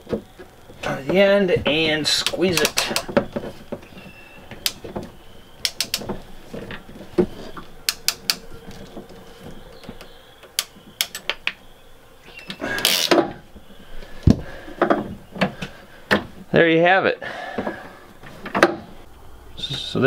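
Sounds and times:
crimp tool clicking: 2.2 - 3.1, 5.6 - 6.1, 7.9 - 8.5.

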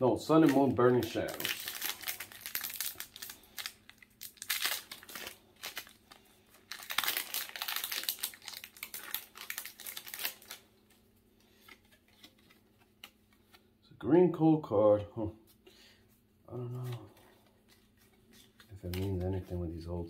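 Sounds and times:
foil wrapper crinkling and tearing: 0.3 - 13.4, 16.8 - 19.6.

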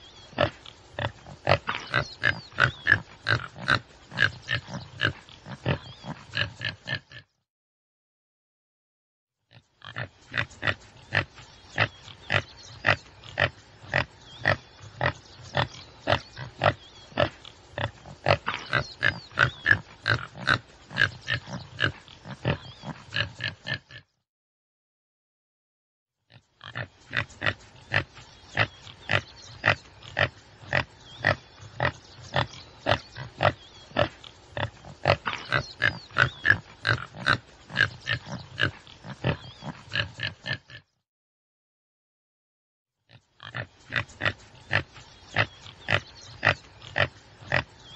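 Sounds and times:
antelope calling: 26.8 - 40.6.

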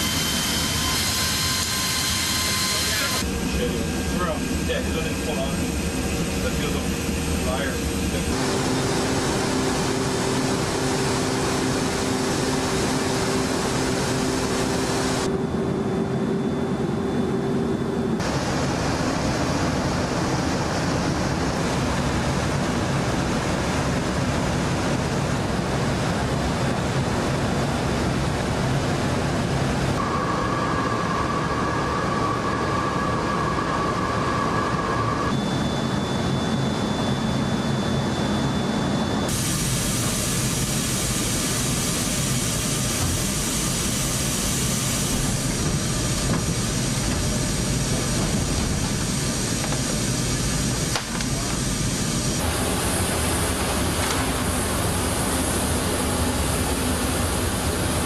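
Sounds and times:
thin steady whine: 0.0 - 22.6, 29.8 - 58.0
jet cabin rumble: 3.2 - 58.0.

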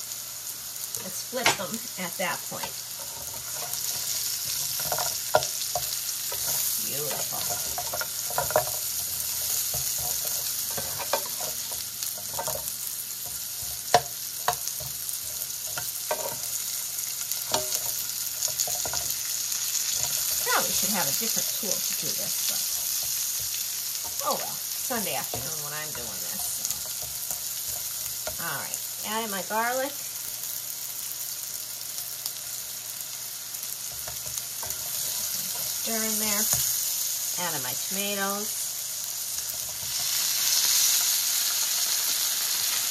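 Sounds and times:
squash sizzling in oil: 0.0 - 42.9
spatula scraping and tapping pan: 2.5 - 24.2, 24.9 - 28.8, 33.8 - 37.1, 39.4 - 41.2.

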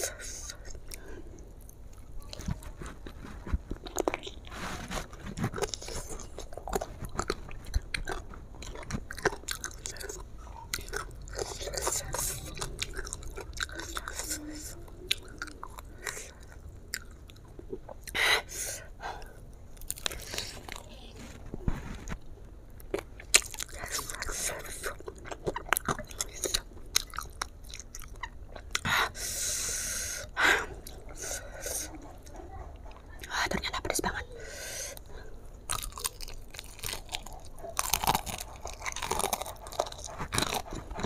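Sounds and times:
crunching fried chicken: 0.5 - 18.0, 19.8 - 22.2, 22.8 - 28.8, 35.0 - 41.0.

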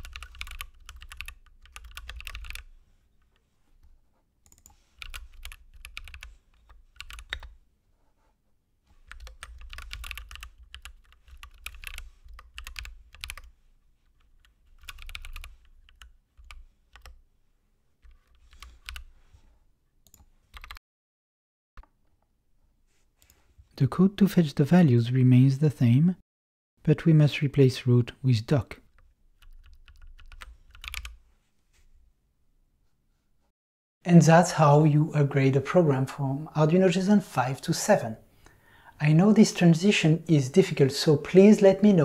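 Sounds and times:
typing on computer keyboard: 0.0 - 2.7, 4.4 - 7.6, 9.1 - 13.5, 14.4 - 17.2, 18.0 - 19.1, 20.0 - 20.8, 29.4 - 31.2.

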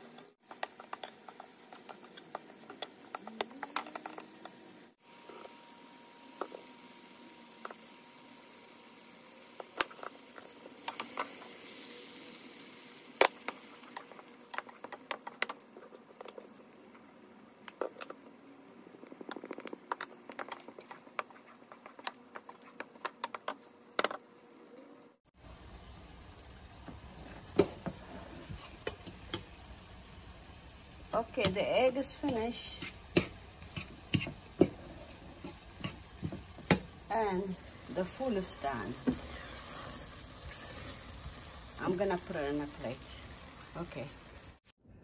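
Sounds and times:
faint sizzle: 0.0 - 23.8, 24.4 - 44.7
wooden spoon scraping frying pan: 27.0 - 29.5, 32.0 - 36.8, 38.0 - 41.4.

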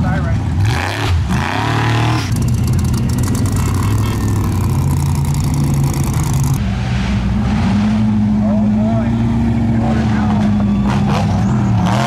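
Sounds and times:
off-road vehicle engine running: 0.0 - 12.0
fast rattle: 2.3 - 6.6.

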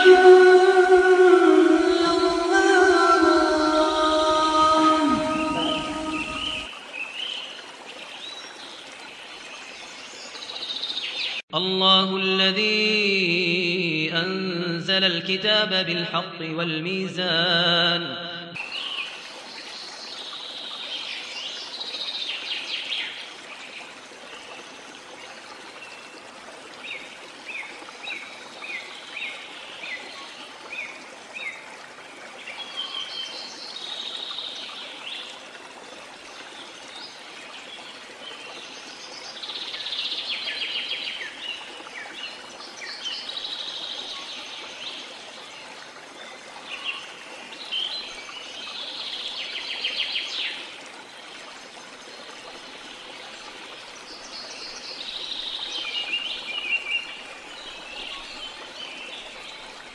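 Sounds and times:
birds singing and chirping: 0.0 - 6.7
trickle of running water: 3.6 - 11.4, 18.6 - 59.9.

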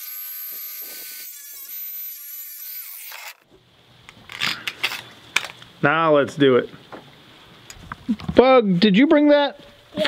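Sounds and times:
grinder whining and spinning down: 0.0 - 3.4.

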